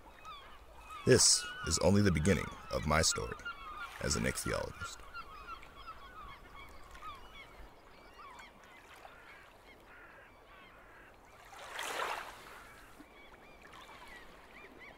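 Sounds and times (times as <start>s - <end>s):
flock of birds calling: 0.2s - 8.4s.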